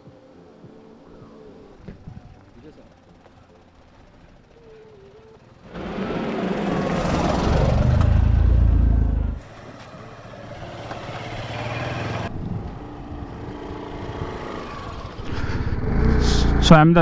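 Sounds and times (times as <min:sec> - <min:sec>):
scooter riding by: 0:00.8 - 0:16.9
motorcycle riding by: 0:02.7 - 0:17.0
car engine driving past: 0:05.6 - 0:09.9, 0:13.7 - 0:17.0.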